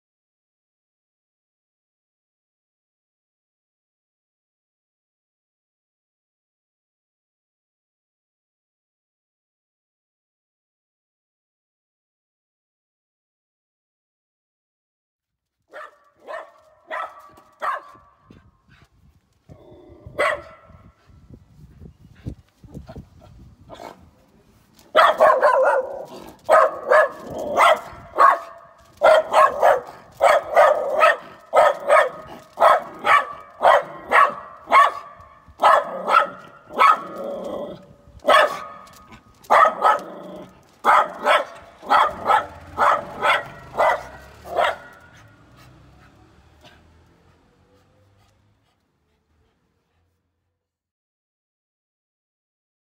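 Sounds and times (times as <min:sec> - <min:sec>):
dog barking: 0:15.7 - 0:18.4, 0:20.1 - 0:21.0, 0:23.7 - 0:24.1, 0:24.9 - 0:45.3.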